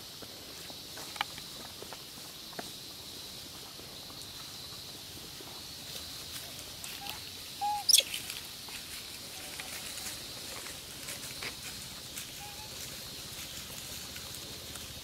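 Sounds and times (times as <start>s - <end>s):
steady high hiss: 0.0s - 15.0s
taps and rustles in dry leaves: 0.9s - 2.8s, 5.9s - 15.0s.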